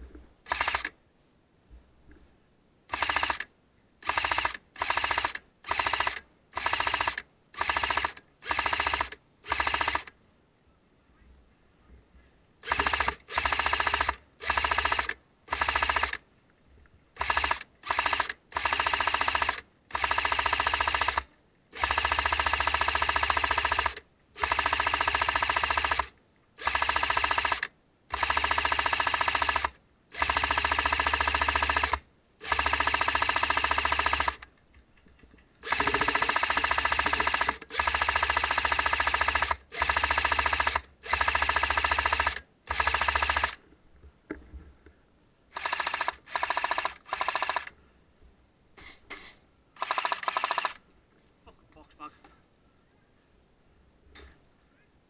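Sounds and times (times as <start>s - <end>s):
airsoft rifle full-auto bursts: 0.4s - 1.0s, 2.9s - 10.2s, 12.6s - 16.2s, 17.2s - 34.5s, 35.6s - 43.6s, 45.5s - 47.8s, 49.8s - 50.8s.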